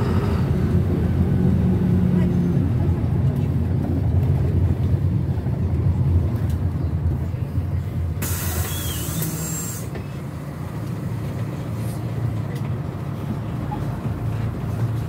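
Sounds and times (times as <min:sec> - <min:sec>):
minibus engine running: 0:00.0 - 0:15.0
compressed air hiss: 0:08.2 - 0:09.9.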